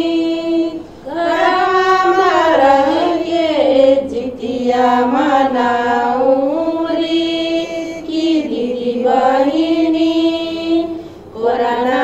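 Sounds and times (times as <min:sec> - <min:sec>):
women singing folk song: 0:00.0 - 0:12.0.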